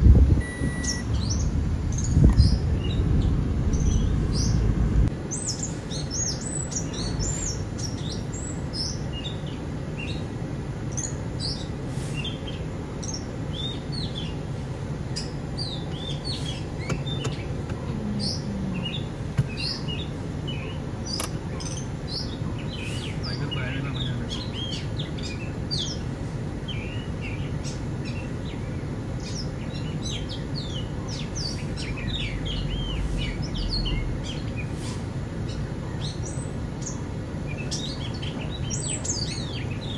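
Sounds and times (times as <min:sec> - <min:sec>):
steady low hum: 0:00.0 - 0:05.3
birds chirping: 0:00.0 - 0:39.9.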